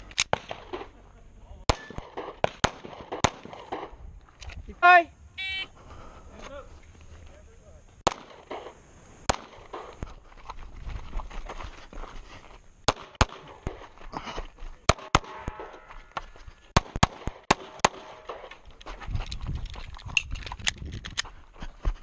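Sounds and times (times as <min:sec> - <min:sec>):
pistol shots: 0:01.7 - 0:04.0, 0:08.0 - 0:10.0, 0:12.9 - 0:13.9, 0:14.9 - 0:15.7, 0:16.8 - 0:18.5.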